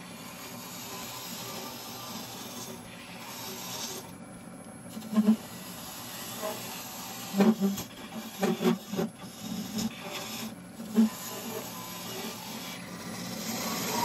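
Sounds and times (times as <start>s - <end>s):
lathe cutting hiss: 5.0s - 14.0s.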